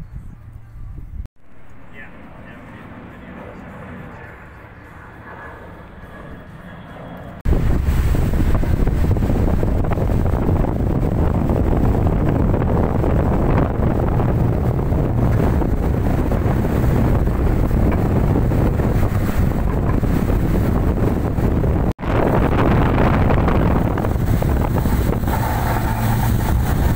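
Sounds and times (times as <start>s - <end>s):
boat engines: 5.8s - 26.9s
wind rushing over microphone: 7.4s - 26.9s
water spray: 7.5s - 9.7s, 24.0s - 26.9s.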